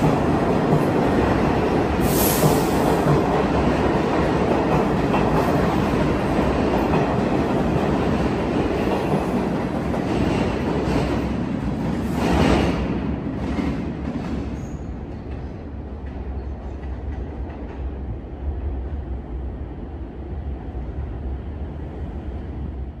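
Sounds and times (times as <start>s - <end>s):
low steady train rumble: 0.0s - 23.0s
train wheel clatter: 1.9s - 18.0s.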